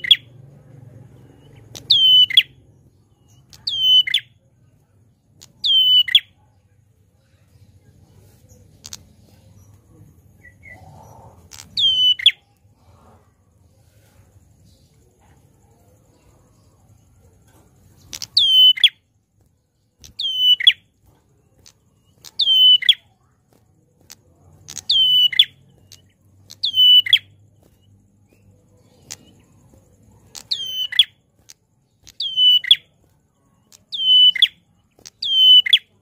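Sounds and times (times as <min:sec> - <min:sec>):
bird calling loudly: 0:26.5 - 0:27.3, 0:35.2 - 0:35.9.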